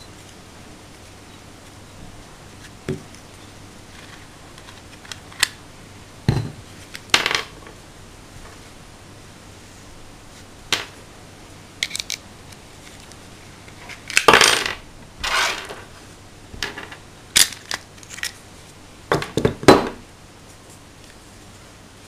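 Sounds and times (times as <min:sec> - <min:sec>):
metal parts clinking on wood: 0:11.8 - 0:12.2.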